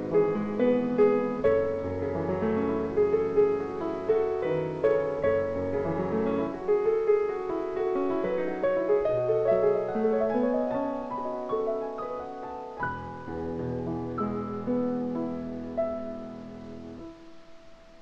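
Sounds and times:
calm piano music: 0.0s - 18.0s.

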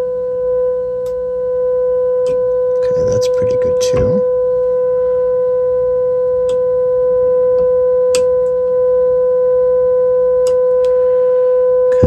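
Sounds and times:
radio steady tone: 2.8s - 4.3s.

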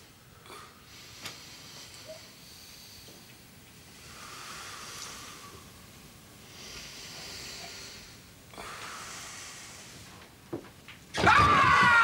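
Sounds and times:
slow deep breathing: 0.2s - 10.3s.

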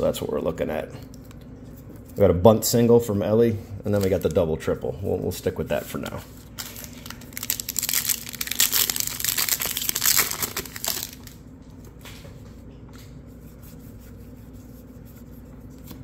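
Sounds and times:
foil wrapper tearing: 4.0s - 4.4s, 6.5s - 11.4s
cards rustling: 6.0s - 11.4s.

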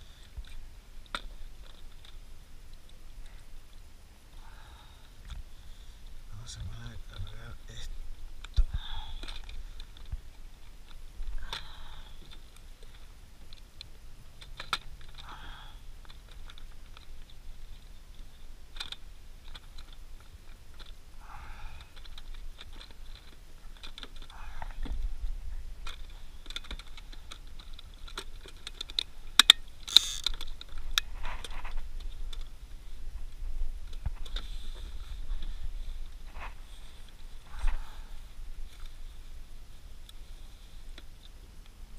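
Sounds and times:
plastic clicks and rattles: 18.2s - 21.0s, 21.8s - 25.0s, 25.8s - 32.5s.

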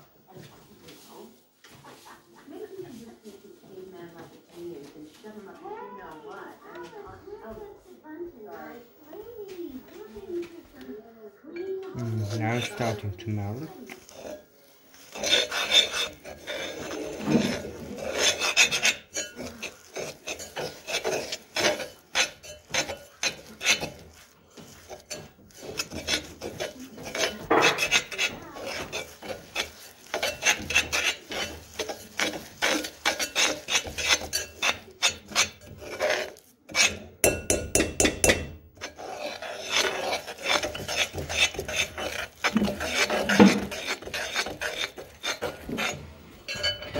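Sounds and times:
fork scraping gritty sugar in pot: 11.9s - 46.9s.

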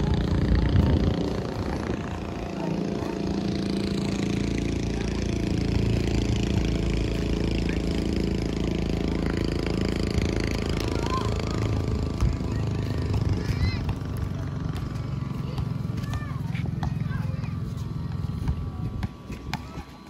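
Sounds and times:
steady engine hum: 0.0s - 20.0s.

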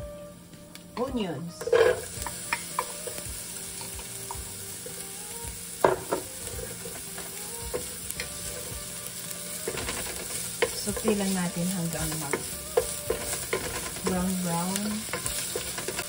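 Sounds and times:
onions sizzling in oil: 0.0s - 16.0s
spatula scraping a pan: 1.6s - 3.2s, 6.0s - 16.0s.

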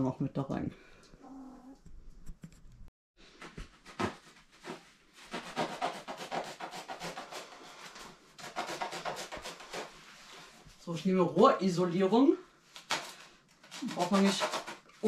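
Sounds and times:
knife scraping foam: 3.4s - 10.7s, 12.7s - 15.0s.

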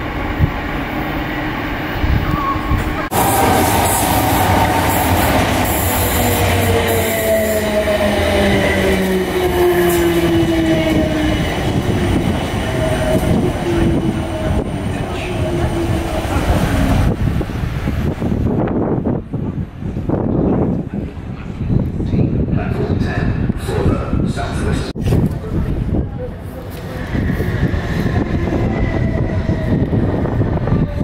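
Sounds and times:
wheel and rail noise: 0.0s - 18.5s, 23.6s - 31.0s.

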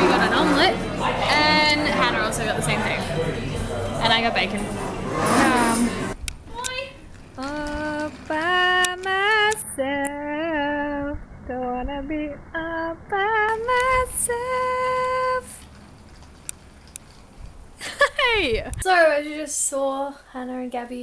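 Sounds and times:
woman singing slow melody: 7.4s - 15.6s.

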